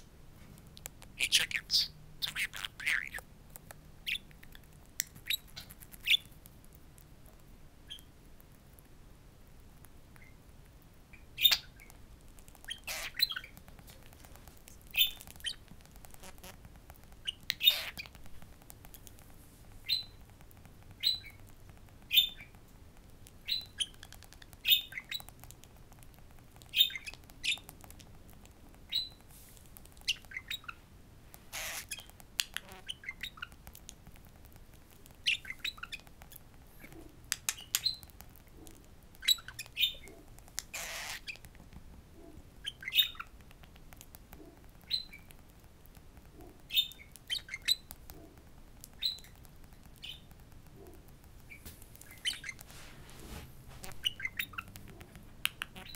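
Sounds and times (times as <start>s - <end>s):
budgerigar chirping and squawking: 1.0s - 3.2s, 11.4s - 11.9s, 12.6s - 13.6s, 14.9s - 16.6s, 17.2s - 18.2s, 19.8s - 20.2s, 21.0s - 21.4s, 22.1s - 22.5s, 23.4s - 25.3s, 26.7s - 27.6s, 28.9s - 29.2s, 30.1s - 30.8s, 31.5s - 33.6s, 35.2s - 36.1s, 39.2s - 41.4s, 42.2s - 43.4s, 44.4s - 45.3s, 46.4s - 48.3s, 49.0s - 49.3s, 53.8s - 55.9s.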